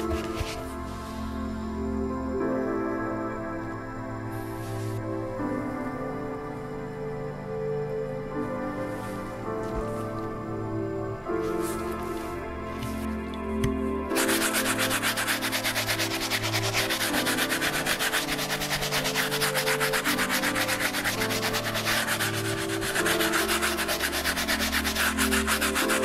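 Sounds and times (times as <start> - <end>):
brush scrubbing a sneaker: 14.1 - 26.0.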